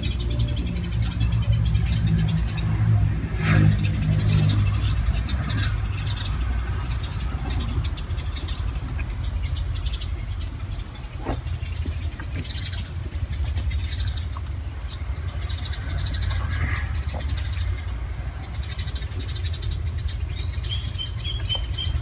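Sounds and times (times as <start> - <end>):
steady low rumble: 0.0 - 22.0.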